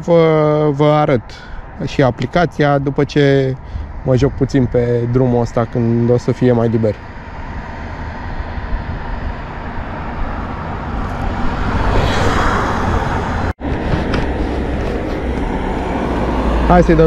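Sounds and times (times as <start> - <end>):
wind and road noise: 0.0 - 17.0
jacket rustling against microphone: 13.6 - 16.2.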